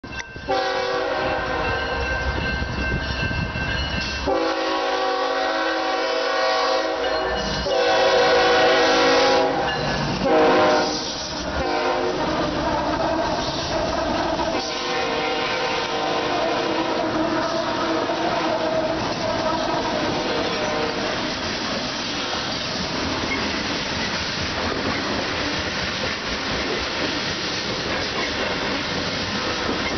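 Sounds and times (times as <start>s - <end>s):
low rumble of train: 0.0s - 29.9s
locomotive air horn blasts: 0.5s - 2.0s, 4.2s - 12.7s, 14.5s - 21.2s.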